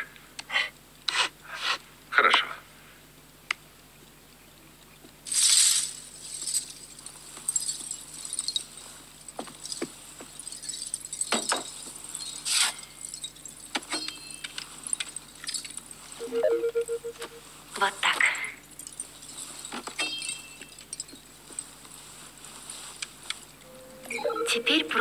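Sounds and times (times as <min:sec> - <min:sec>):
hard objects clinking and rattling: 0:05.3 - 0:16.2, 0:18.6 - 0:22.2.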